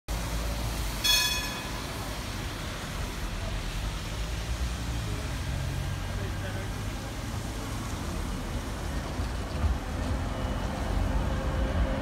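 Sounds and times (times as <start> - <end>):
tram rumbling: 0.1 - 12.0
brief high ringing: 1.0 - 1.8.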